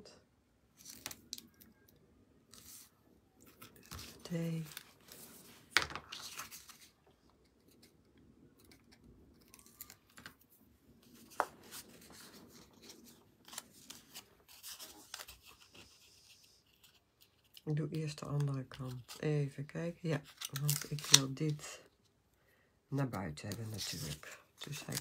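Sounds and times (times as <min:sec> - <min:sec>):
card rubbing and rustling: 0:02.5 - 0:17.6, 0:23.4 - 0:25.0
tape tearing: 0:20.3 - 0:21.4.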